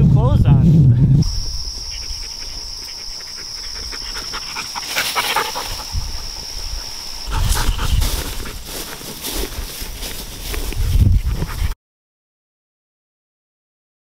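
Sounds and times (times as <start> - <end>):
grass rustling: 0.5 - 11.8
dog panting: 1.8 - 11.8.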